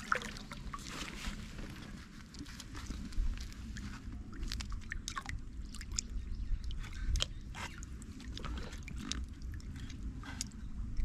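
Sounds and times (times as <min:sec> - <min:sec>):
fish splashing and thrashing in water: 0:00.0 - 0:11.0
wind buffeting microphone: 0:02.8 - 0:11.0.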